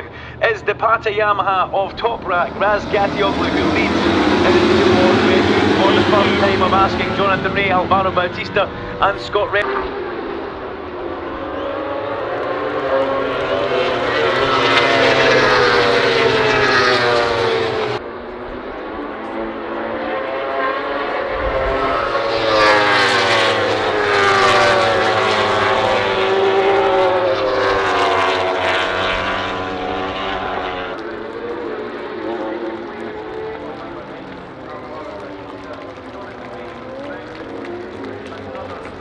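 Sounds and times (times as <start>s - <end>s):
racing motorcycles passing: 0.0s - 39.0s.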